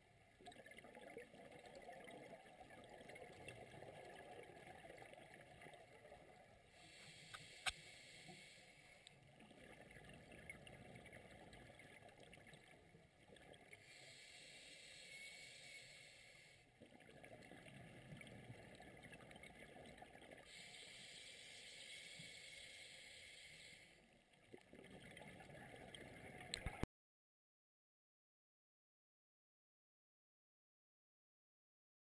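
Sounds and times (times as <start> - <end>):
underwater water noise: 0.0 - 26.9
hiss: 6.8 - 9.0, 13.8 - 16.6, 20.5 - 24.0
faint ticks: 6.8 - 12.7, 25.5 - 26.9.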